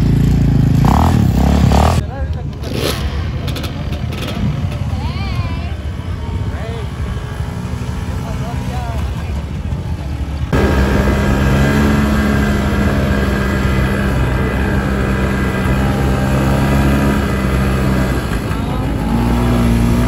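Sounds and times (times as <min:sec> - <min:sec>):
off-road vehicle engine running: 0:00.0 - 0:20.0.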